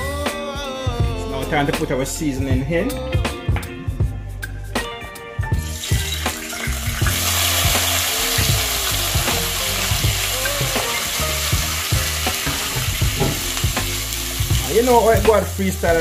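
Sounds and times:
vegetables sizzling in hot oil: 0:05.7 - 0:16.0.

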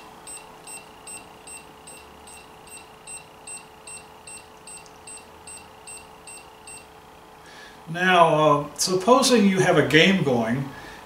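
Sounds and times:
faint steady hum: 0:00.0 - 0:11.0
rapid short high beeps: 0:00.3 - 0:06.9.

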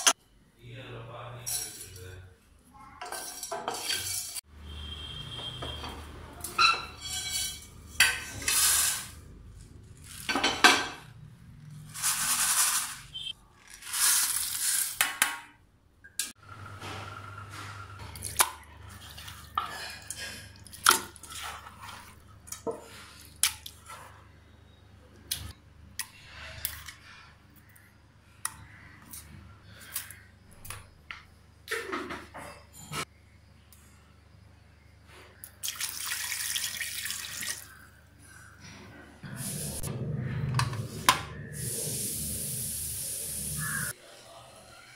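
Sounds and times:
utensils clinking on steel pot: 0:03.0 - 0:04.4, 0:05.8 - 0:08.7.

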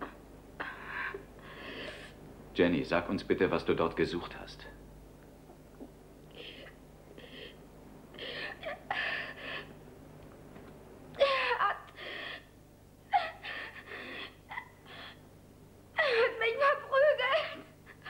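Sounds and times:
woman sobbing: 0:06.3 - 0:09.7, 0:11.2 - 0:15.2, 0:16.0 - 0:18.0.

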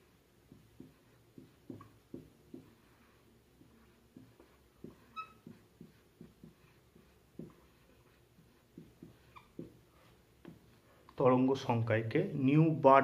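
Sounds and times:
marker strokes on whiteboard: 0:00.0 - 0:11.2
marker squeak: 0:02.8 - 0:10.1.

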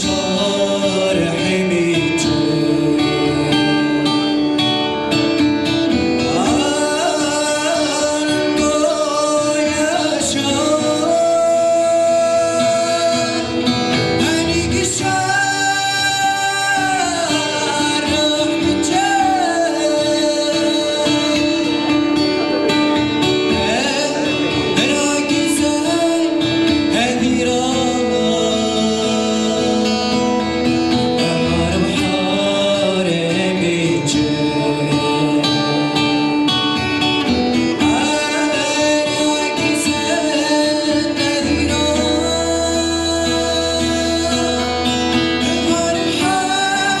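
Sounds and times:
man singing into a microphone: 0:00.0 - 0:47.0
strummed acoustic guitar: 0:00.0 - 0:47.0.

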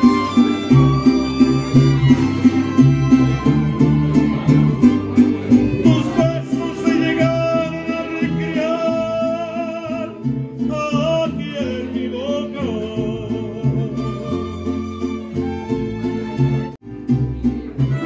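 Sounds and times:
violins playing melody: 0:00.0 - 0:07.3
pulsing low string accompaniment: 0:00.0 - 0:08.5.

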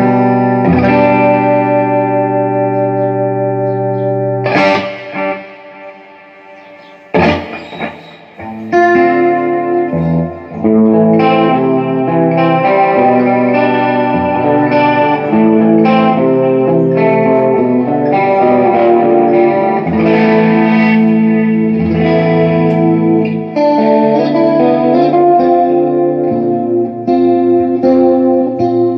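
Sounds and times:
electric guitar through amp: 0:00.0 - 0:28.9.

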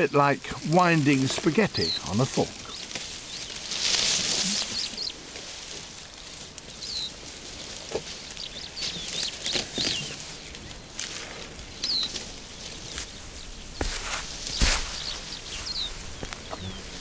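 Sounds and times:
grass rustling and tearing: 0:00.0 - 0:17.0
high bird chirps: 0:12.8 - 0:17.0.

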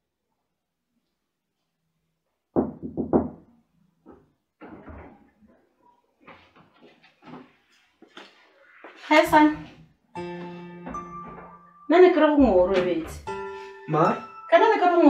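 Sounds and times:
knocks on wooden door: 0:02.6 - 0:03.5
door opening clicks and bumps: 0:10.9 - 0:11.6.

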